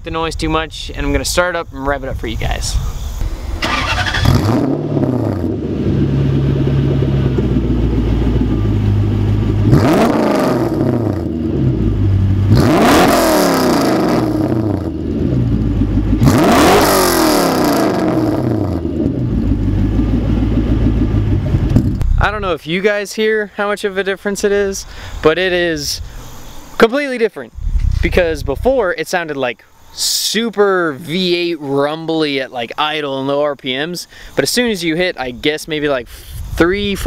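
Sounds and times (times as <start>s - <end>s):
engine idling rumble: 3.2s - 12.8s, 14.0s - 22.6s
engine revving: 3.2s - 22.1s
car engine starting: 3.2s - 22.4s.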